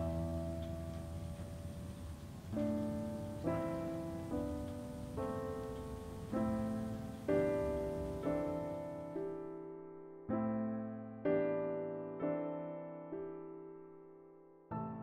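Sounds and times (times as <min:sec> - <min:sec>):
soft piano chords: 0:00.0 - 0:15.0.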